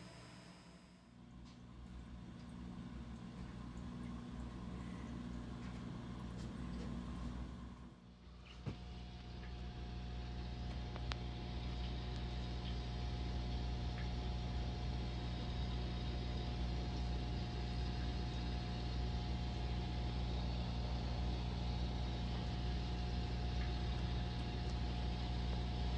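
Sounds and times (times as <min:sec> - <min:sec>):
thin constant tone: 0:00.0 - 0:01.1
aquarium pumps humming: 0:00.0 - 0:25.9.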